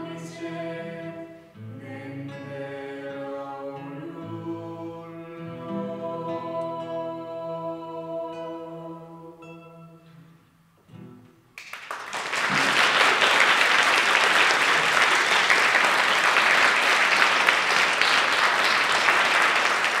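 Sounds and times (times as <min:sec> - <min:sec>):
audience applause: 0:11.6 - 0:20.0.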